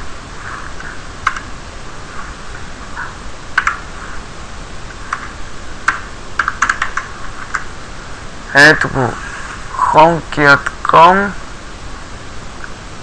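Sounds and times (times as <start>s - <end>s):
background hiss: 0.0s - 13.0s
keyboard keys tapping: 3.6s - 3.8s, 5.1s - 7.7s.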